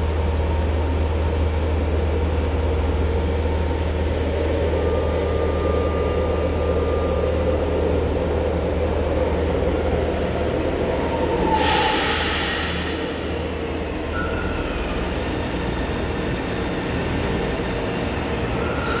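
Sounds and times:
trains rumbling: 0.0s - 19.0s
loud hiss: 11.6s - 13.4s.

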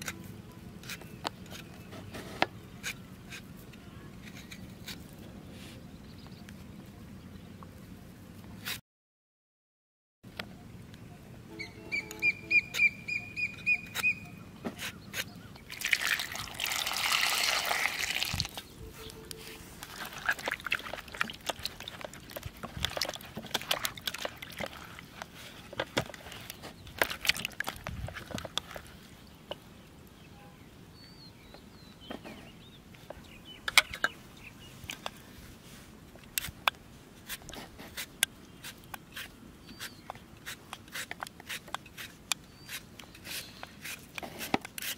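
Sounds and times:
bird calling: 10.5s - 15.7s, 18.6s - 19.8s
water splashing: 15.7s - 18.6s, 19.8s - 25.2s
water sloshing with clicks: 19.8s - 28.9s
peeler scraping fruit skin: 37.2s - 44.9s.

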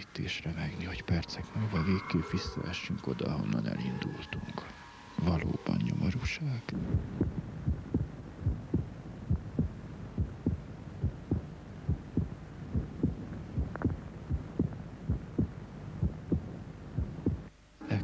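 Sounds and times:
faint hum: 0.0s - 18.0s
heartbeat thumps: 6.2s - 17.5s.

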